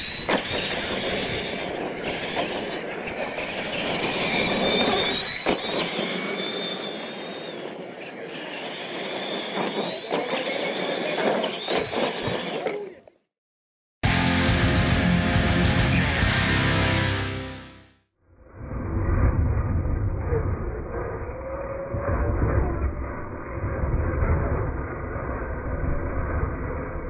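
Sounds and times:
toy truck motors whining: 0:00.0 - 0:13.2
electric guitar rock music: 0:14.0 - 0:18.0.

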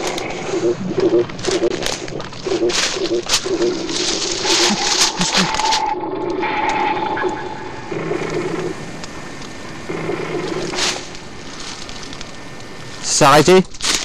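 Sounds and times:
footsteps in undergrowth: 0:00.0 - 0:06.0, 0:10.4 - 0:14.0
low droning hum: 0:00.0 - 0:13.1.

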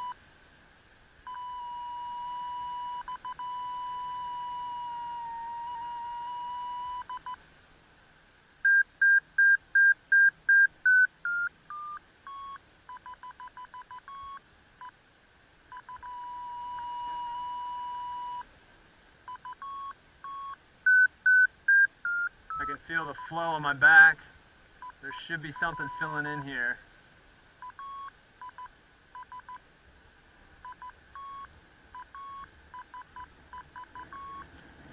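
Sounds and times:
variometer steady tone: 0:00.0 - 0:00.2, 0:01.2 - 0:07.4, 0:08.6 - 0:15.0, 0:15.7 - 0:18.5, 0:19.2 - 0:23.8, 0:24.8 - 0:26.7, 0:27.6 - 0:29.6, 0:30.6 - 0:34.5
variometer short beeps shifting pitch: 0:01.3 - 0:07.4, 0:08.7 - 0:14.9, 0:15.7 - 0:18.4, 0:19.3 - 0:23.4, 0:24.8 - 0:26.6, 0:27.6 - 0:29.6, 0:30.6 - 0:34.5.

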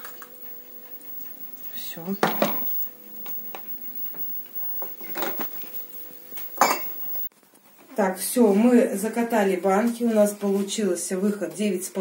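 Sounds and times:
kitchenware clinking: 0:04.7 - 0:07.3.

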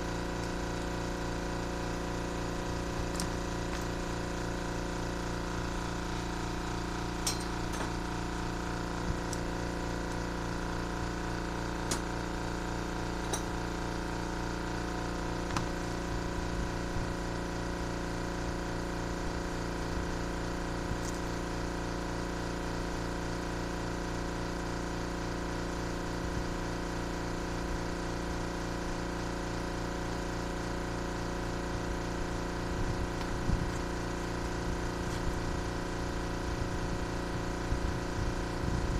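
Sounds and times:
steady machine hum: 0:00.0 - 0:38.9
light metal clinks and taps: 0:07.2 - 0:07.9.

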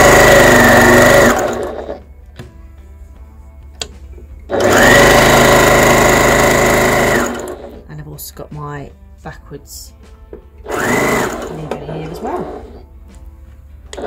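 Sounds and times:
sewing machine motor whine: 0:00.0 - 0:02.0, 0:04.5 - 0:07.8, 0:10.7 - 0:12.8
sewing machine stitching: 0:00.0 - 0:02.0, 0:04.5 - 0:07.8, 0:10.7 - 0:12.8.

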